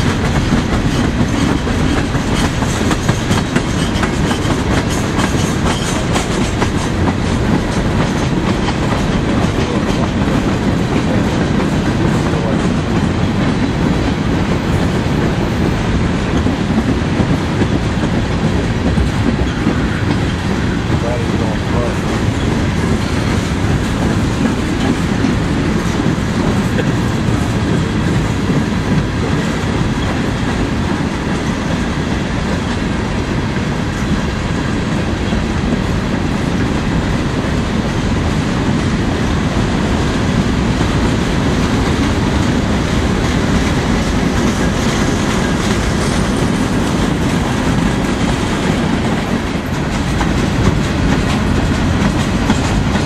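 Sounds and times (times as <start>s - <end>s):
train wheels clattering on rails: 0.0s - 53.0s.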